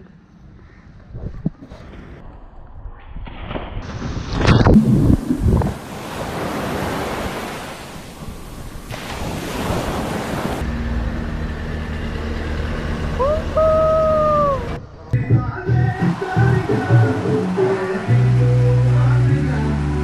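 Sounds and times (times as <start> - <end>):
wind buffeting microphone: 0.5 - 2.3, 3.9 - 10.6
muffled underwater rush: 3.8 - 10.6
waves washing on beach: 3.8 - 10.6.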